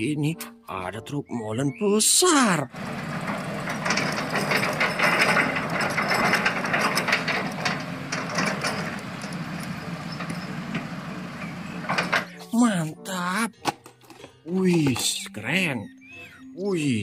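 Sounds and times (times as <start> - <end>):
toy truck wheels rattling: 2.7 - 12.3.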